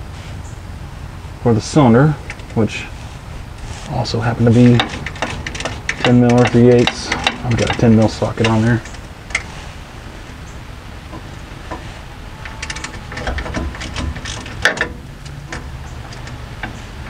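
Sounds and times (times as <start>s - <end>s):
hand ratchet clicking: 4.6s - 9.5s, 12.4s - 17.0s.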